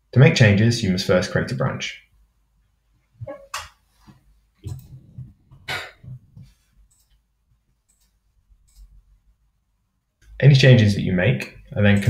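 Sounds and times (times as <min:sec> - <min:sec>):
soft clicks: 0:07.8 - 0:09.0.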